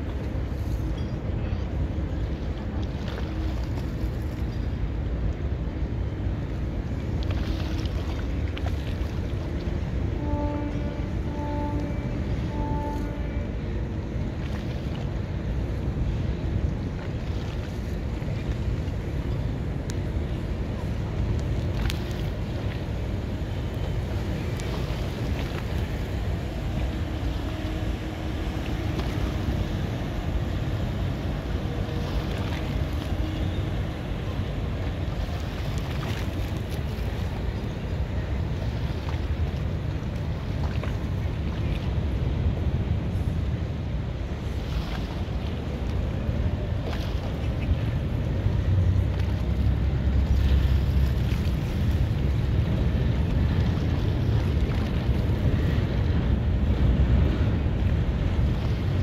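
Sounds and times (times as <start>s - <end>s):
faint steady hum: 0.0s - 59.0s
ferry engine rumble: 0.0s - 59.0s
water rushing: 0.0s - 59.0s
wind buffeting microphone: 0.0s - 59.0s.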